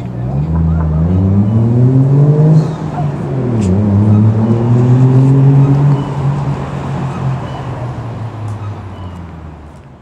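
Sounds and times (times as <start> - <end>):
car engine accelerating: 0.0 - 9.6.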